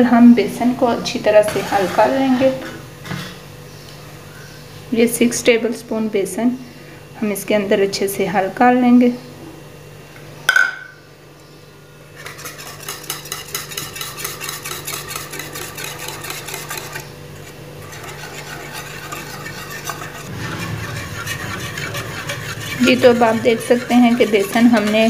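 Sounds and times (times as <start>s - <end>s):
whisk clicking against metal bowl: 12.2s - 17.0s, 17.8s - 20.3s, 21.8s - 25.0s.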